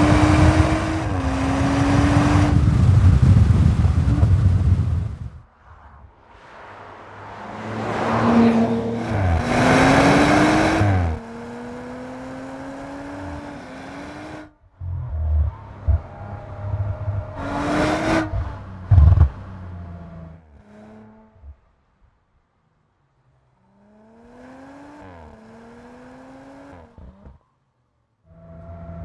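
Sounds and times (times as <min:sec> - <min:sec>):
car engine accelerating: 0:00.0 - 0:04.9, 0:07.2 - 0:21.6, 0:28.3 - 0:29.0
car rushing drive-bys: 0:05.4 - 0:21.7.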